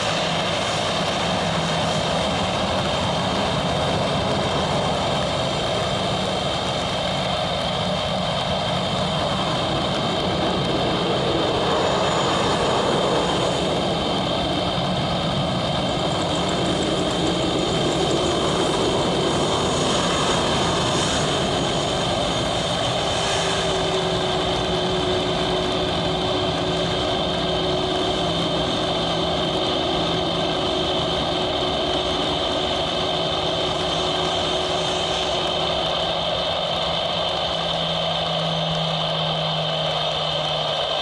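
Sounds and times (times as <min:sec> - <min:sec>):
jet engines whining: 0:00.0 - 0:41.0.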